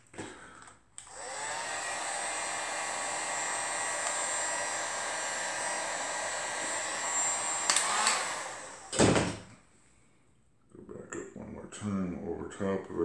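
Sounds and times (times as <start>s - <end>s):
heat gun running: 1.0s - 9.3s.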